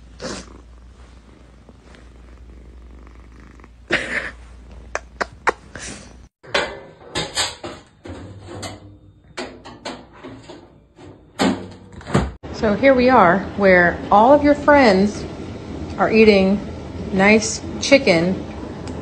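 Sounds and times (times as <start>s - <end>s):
kitten purring: 0.0s - 6.3s
sharp knocks and clatters: 6.4s - 12.4s.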